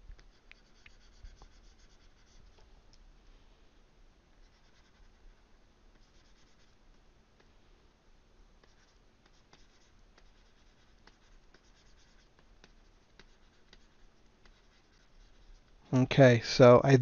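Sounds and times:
stylus scratching on tablet: 0:00.0 - 0:02.6, 0:04.4 - 0:05.3, 0:05.9 - 0:07.0, 0:08.6 - 0:15.8.

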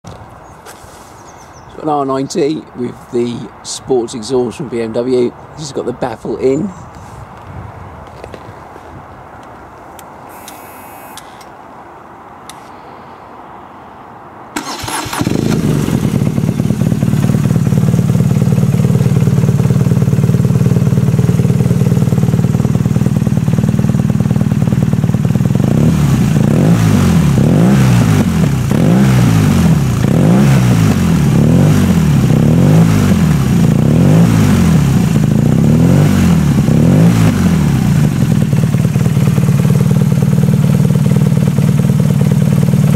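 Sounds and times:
motorcycle starter cranking: 0:14.6 - 0:16.3
motorcycle engine idling and revving: 0:14.6 - 0:42.9.

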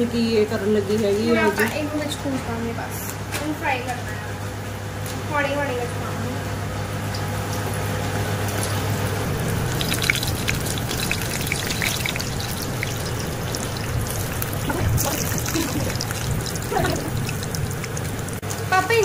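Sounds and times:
food sizzling in hot oil: 0:06.9 - 0:19.0.

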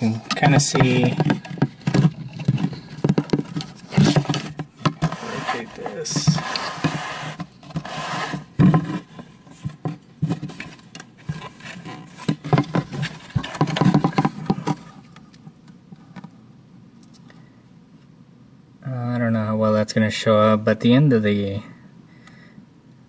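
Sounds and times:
plastic tubing rubbing and clicking: 0:00.0 - 0:16.3.

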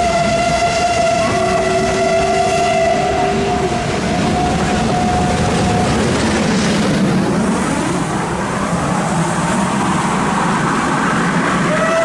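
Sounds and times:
steam locomotive whistle: 0:00.0 - 0:05.9, 0:11.6 - 0:12.0
steam train working: 0:00.0 - 0:12.0.

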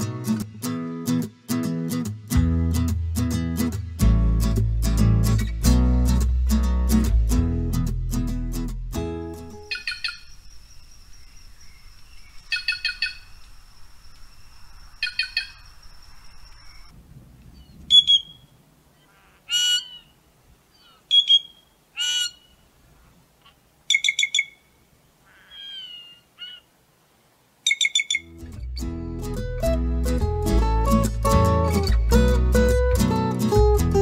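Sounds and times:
jay calling: 0:09.6 - 0:10.4, 0:12.1 - 0:13.4, 0:15.0 - 0:15.7, 0:17.6 - 0:26.7, 0:27.6 - 0:28.4.

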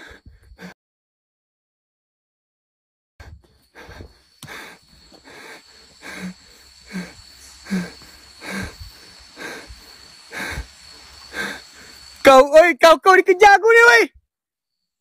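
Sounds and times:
man breathing hard: 0:00.0 - 0:00.8, 0:03.2 - 0:12.2
high insect buzz: 0:03.4 - 0:12.6.

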